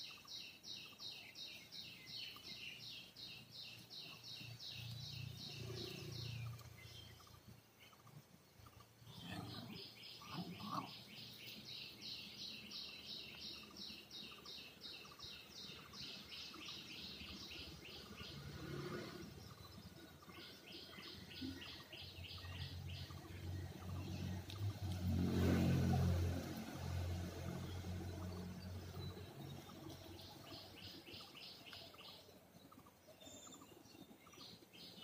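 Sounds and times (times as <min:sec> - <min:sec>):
bird chirping: 0:00.0 - 0:35.0.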